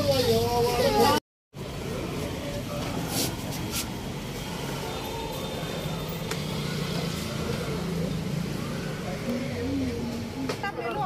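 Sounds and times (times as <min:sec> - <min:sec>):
low din of busy shop: 0:00.0 - 0:11.0.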